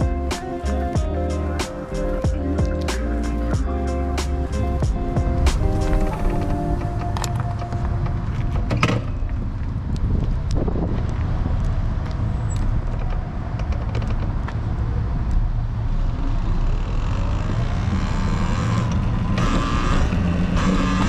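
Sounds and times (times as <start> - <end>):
tyres rumbling on pavement: 0.0 - 21.0
wind on microphone: 3.7 - 13.5.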